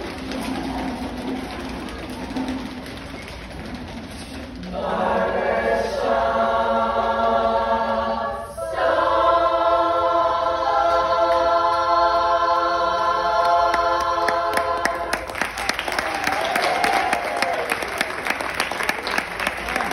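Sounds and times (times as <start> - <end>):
women's chorus singing a cappella: 4.6 - 15.3
applause: 14.2 - 19.9.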